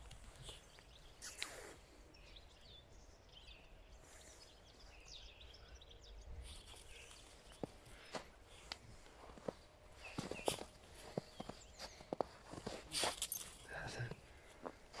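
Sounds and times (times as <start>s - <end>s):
small birds chirping: 0.0s - 15.0s
footstep crunching in snow: 6.5s - 15.0s.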